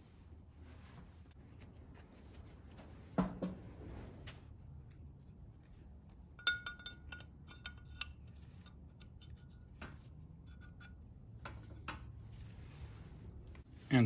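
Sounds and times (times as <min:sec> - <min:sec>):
ball bearing clinking on metal: 0:06.4 - 0:11.9.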